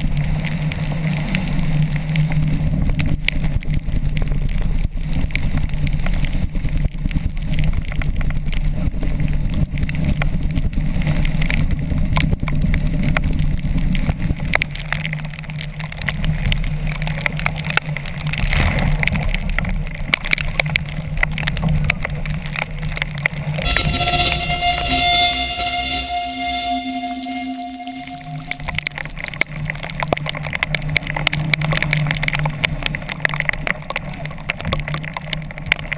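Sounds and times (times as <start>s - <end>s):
music: 23.6s - 29.5s
low rumble: 23.6s - 30.0s.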